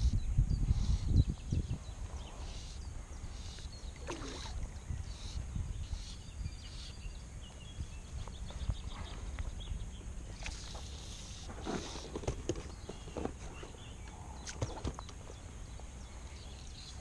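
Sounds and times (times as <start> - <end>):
wind rumble on microphone: 0.0 - 10.7
faint bird chirps: 0.0 - 17.0
water lapping and sloshing: 3.9 - 4.8.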